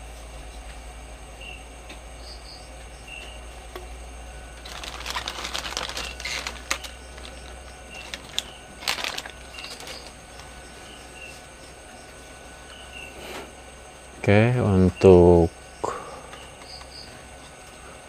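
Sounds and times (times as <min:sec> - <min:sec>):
faint crickets chirping: 0:00.0 - 0:18.0
plastic bag crinkling: 0:04.6 - 0:10.5.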